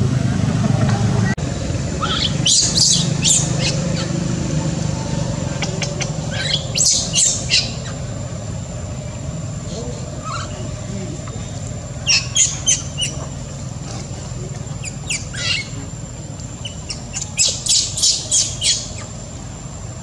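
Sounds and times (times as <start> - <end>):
baby monkey squealing: 2.0 - 4.3, 5.0 - 8.2, 9.6 - 10.8, 12.0 - 13.4, 14.8 - 15.8, 16.6 - 19.2.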